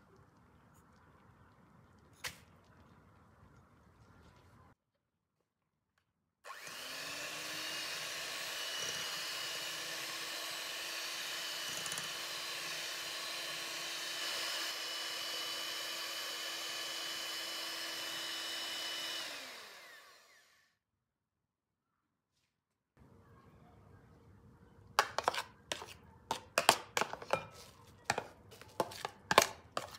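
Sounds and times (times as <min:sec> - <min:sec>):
electric hand mixer whining: 0:06.5 - 0:20.7
beaters whisking in glass bowl: 0:25.0 - 0:29.9.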